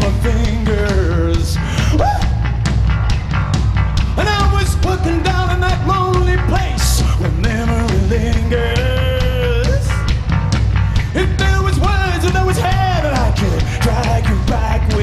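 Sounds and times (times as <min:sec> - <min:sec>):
live rock band playing: 0:00.0 - 0:15.0.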